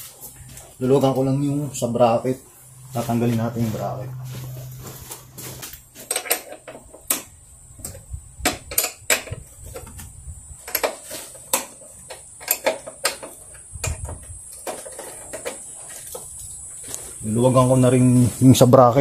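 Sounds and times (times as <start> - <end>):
hand tools clicking on metal bolts: 6.0 - 10.0, 10.6 - 15.8.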